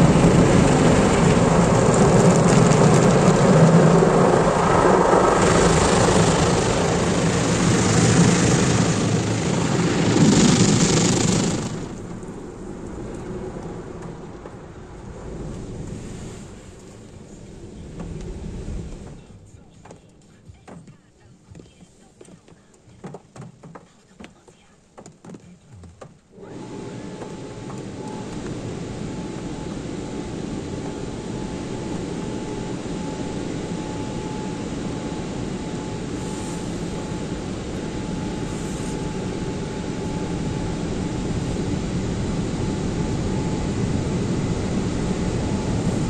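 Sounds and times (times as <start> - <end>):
spray water rushing on car: 0.0 - 13.2
rotating brush sweeping windshield: 0.0 - 20.2, 36.1 - 37.6, 38.2 - 40.0
car wash machinery drone: 0.0 - 24.0, 26.3 - 46.0.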